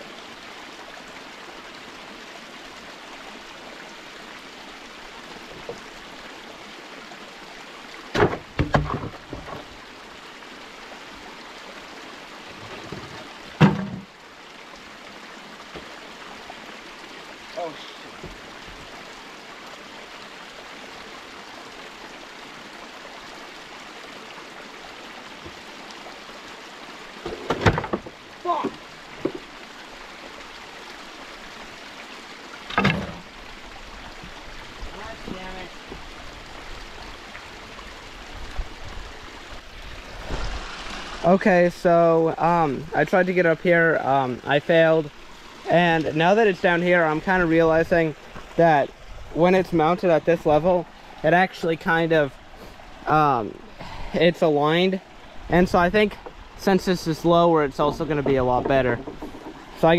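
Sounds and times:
small stream running: 0.0s - 59.9s
loud wooden thump: 8.1s - 9.7s, 12.8s - 14.1s, 27.2s - 29.5s, 32.7s - 33.2s
wooden knocks and clunks: 8.1s - 9.8s, 12.6s - 14.1s, 15.7s - 15.9s, 18.2s - 18.9s, 25.4s - 25.6s, 27.2s - 29.5s, 32.6s - 33.3s, 57.8s - 59.9s.

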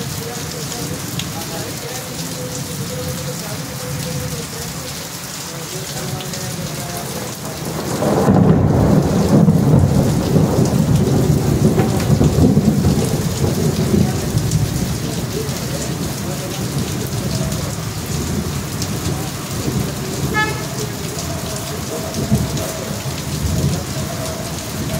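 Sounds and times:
steady rain: 0.0s - 24.9s
rolling thunder: 7.6s - 24.9s.

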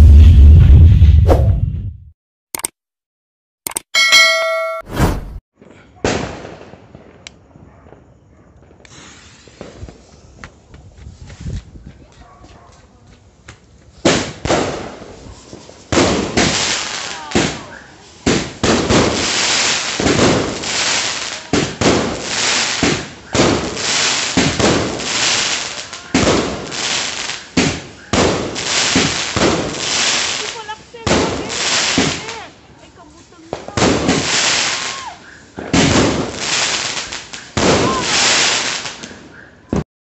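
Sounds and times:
firework fuse hissing: 8.8s - 10.5s, 15.1s - 39.2s.

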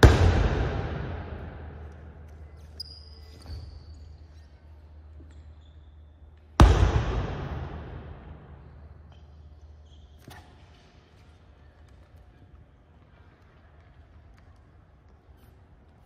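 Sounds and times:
shoe squeaks: 2.3s - 6.5s, 9.1s - 10.8s.

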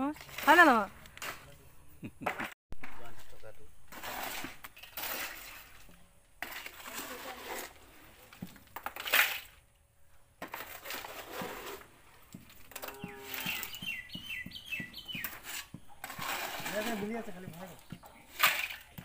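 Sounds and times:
loud scrape: 3.9s - 8.0s, 10.4s - 12.0s, 12.6s - 13.8s, 15.2s - 17.3s
high chirping call: 12.8s - 15.5s.

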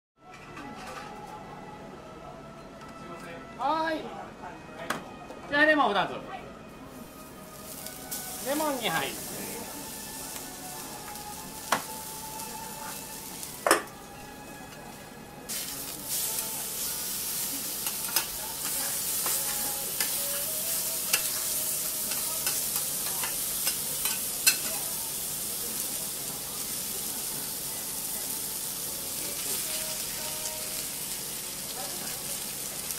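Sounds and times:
food sizzling on a griddle: 6.9s - 32.9s
metal spatula clinking on griddle: 22.1s - 24.8s.

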